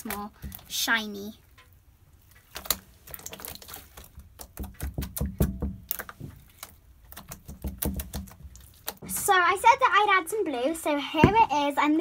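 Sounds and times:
slime clicking and popping: 2.4 - 9.0.

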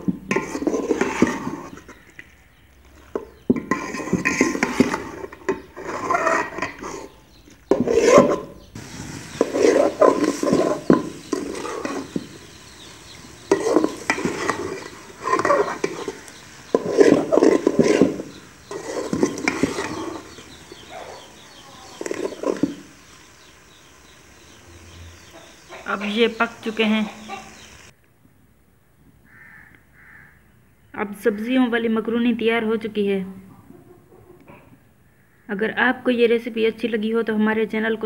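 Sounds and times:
metal spoon stirring in a pot: 0.0 - 2.3, 2.9 - 24.6.

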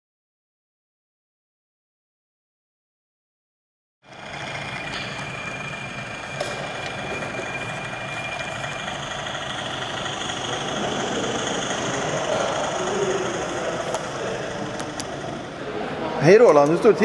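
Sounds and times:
diesel railbus engine sound: 4.0 - 17.0
model train running noise: 4.1 - 17.0
thin high whine: 4.1 - 17.0.

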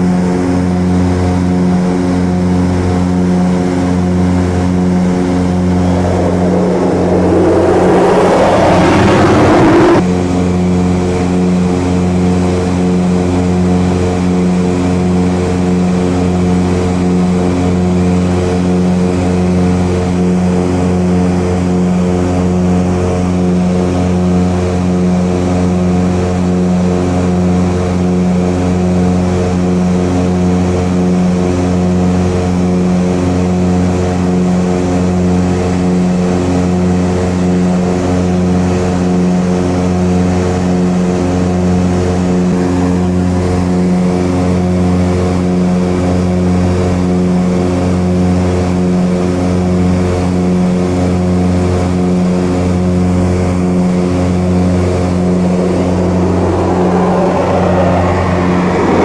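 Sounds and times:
aircraft engine drone: 2.6 - 26.4, 51.3 - 59.0.

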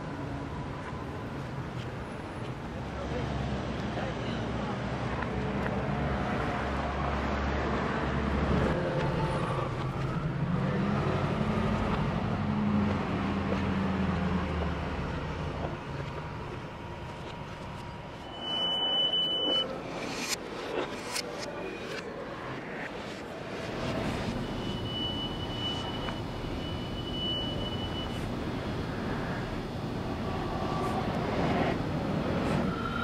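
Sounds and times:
traffic rumble: 0.0 - 33.0
high beep: 18.2 - 20.4, 24.4 - 28.2.

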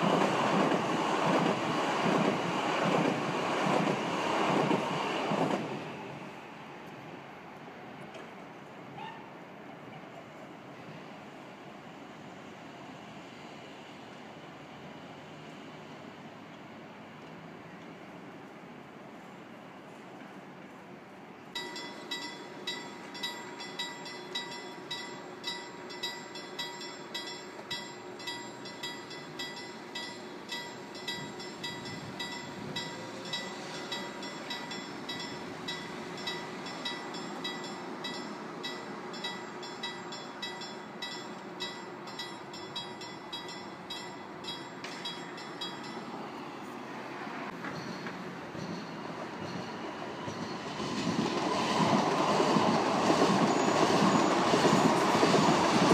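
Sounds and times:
level crossing warning bell: 21.6 - 46.3.

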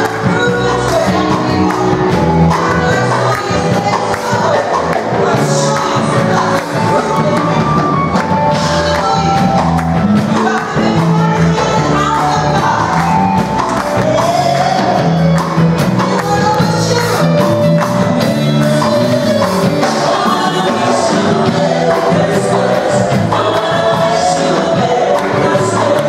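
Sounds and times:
live band playing upbeat song: 0.0 - 26.0
voices singing along: 18.1 - 26.0.

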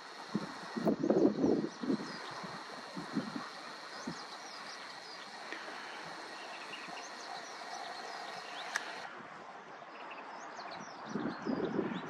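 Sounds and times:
distant birds chirping: 0.0 - 9.1
sharp click: 8.4 - 9.0.

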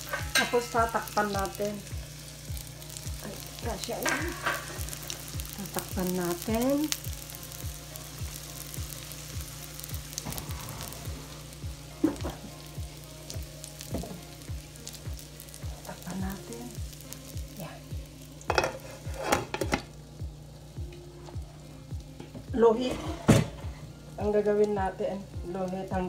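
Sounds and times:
eggs sizzling in a pan: 0.0 - 26.0.

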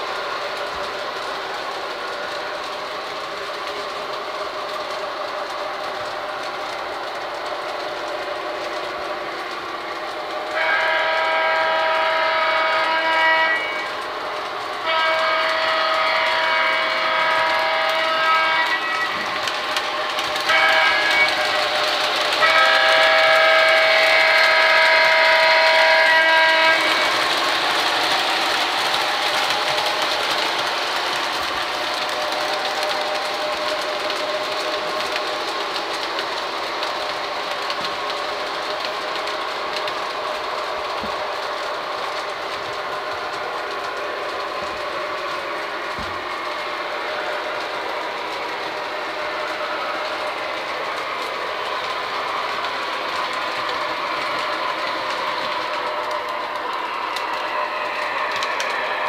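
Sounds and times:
model train running on track: 0.0 - 59.0
model train horn: 10.4 - 19.5, 20.2 - 29.0.

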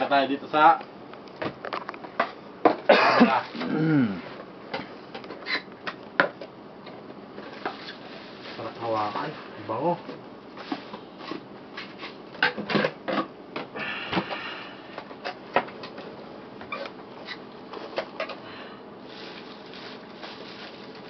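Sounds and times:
cardboard scraping rustle: 19.0 - 21.0.

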